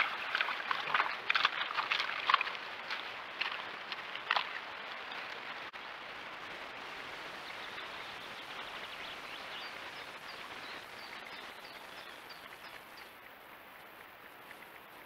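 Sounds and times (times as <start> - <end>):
splashy rustle: 0.0 - 5.8
steady outdoor hiss: 0.0 - 15.0.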